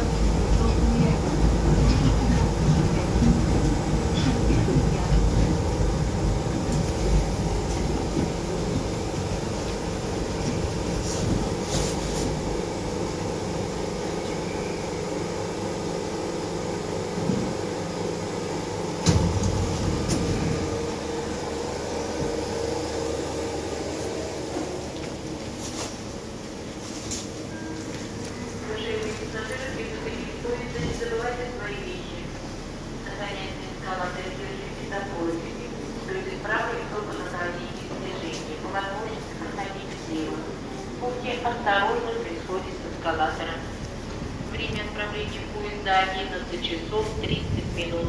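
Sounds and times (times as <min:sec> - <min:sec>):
steady hum: 0:00.0 - 0:27.2
train rumbling to a stop: 0:00.0 - 0:48.0.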